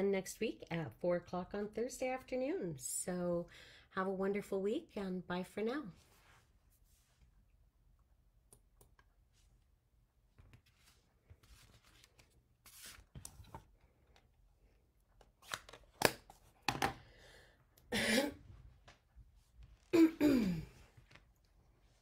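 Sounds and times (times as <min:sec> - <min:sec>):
paper cards rustling: 0:10.4 - 0:14.2.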